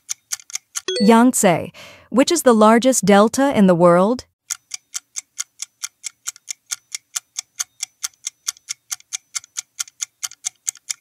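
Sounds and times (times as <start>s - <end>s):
clock-like timer ticking: 0.0s - 0.9s, 4.5s - 11.0s.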